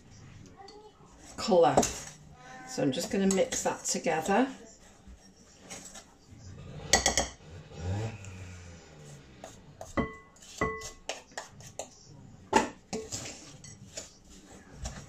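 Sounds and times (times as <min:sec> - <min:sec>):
spoon scraping and knocking in bowl: 0:01.2 - 0:02.2, 0:02.8 - 0:06.2, 0:06.9 - 0:07.4, 0:09.4 - 0:15.0.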